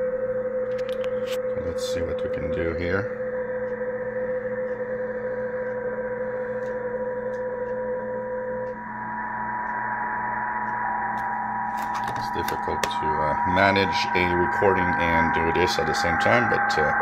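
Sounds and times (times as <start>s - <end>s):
steady digital radio tones: 0.0s - 17.0s
radio band hiss: 11.8s - 17.0s.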